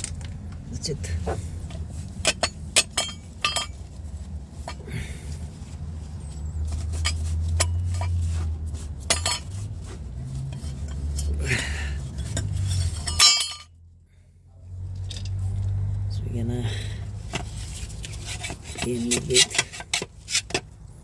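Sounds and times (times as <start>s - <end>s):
metal part wiped with a rag: 5.4s - 11.4s.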